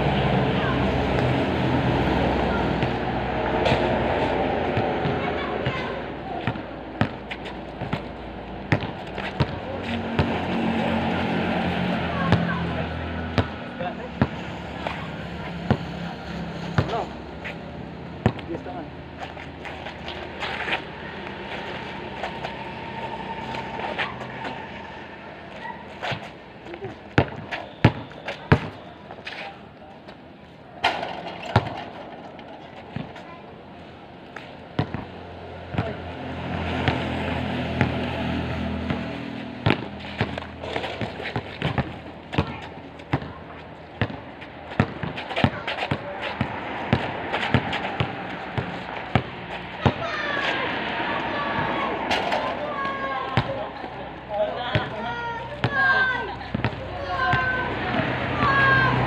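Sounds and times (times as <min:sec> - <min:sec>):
vehicle engine hum: 0:00.0 - 0:28.2, 0:30.6 - 0:44.7, 0:45.3 - 0:59.0
basketball bouncing: 0:04.8 - 0:08.1, 0:08.7 - 0:09.6, 0:10.2 - 0:10.4, 0:13.4 - 0:13.6, 0:18.2 - 0:18.5, 0:27.1 - 0:28.8, 0:30.8 - 0:32.1, 0:34.8 - 0:35.1, 0:35.7 - 0:36.0, 0:38.8 - 0:50.1, 0:53.3 - 0:53.6, 0:56.5 - 0:58.6.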